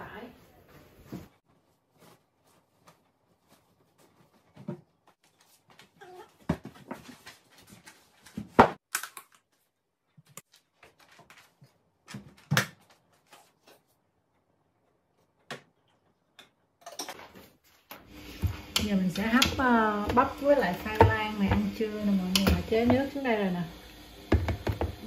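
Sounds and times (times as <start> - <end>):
knocks and thumps in washing machine drum: 18.4 - 23.2, 24.3 - 25.0.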